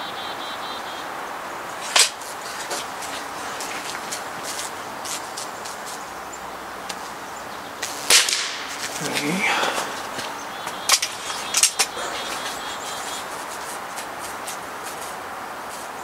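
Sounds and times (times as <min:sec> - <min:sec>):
air rifle shot: 0:08.1 - 0:08.8
sharp clicks: 0:10.7 - 0:12.5.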